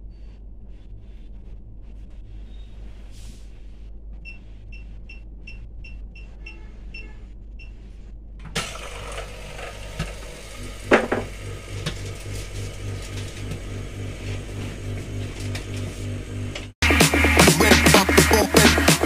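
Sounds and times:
pump pulsing hum: 8.6s - 16.7s.

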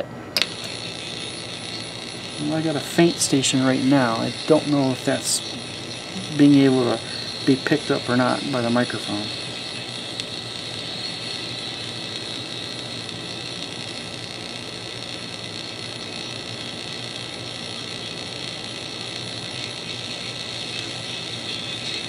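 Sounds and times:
low hum: 0.0s - 21.5s
faint radio station: 0.0s - 22.0s
radio static and hiss: 0.0s - 22.0s.

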